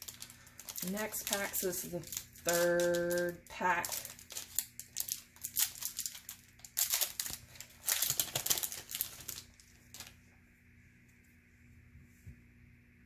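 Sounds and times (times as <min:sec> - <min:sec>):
foil wrapper crinkling and tearing: 0:00.0 - 0:10.2.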